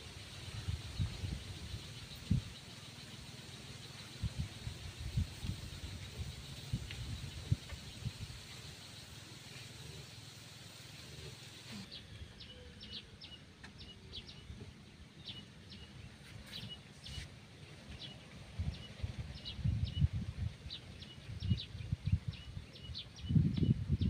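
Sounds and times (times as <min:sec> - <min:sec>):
steady hiss: 0:00.0 - 0:12.2.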